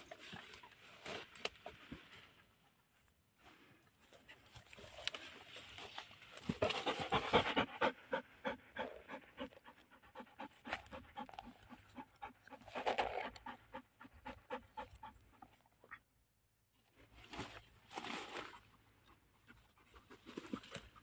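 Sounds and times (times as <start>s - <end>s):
dog panting rapidly: 6.7s - 15.4s.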